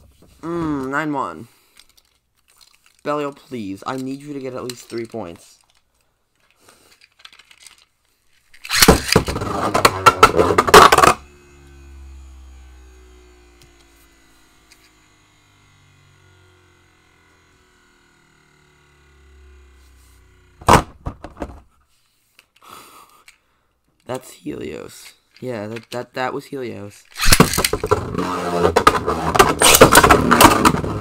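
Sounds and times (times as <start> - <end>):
spinning tops clattering and scraping: 1.7 - 11.2, 27.0 - 31.0.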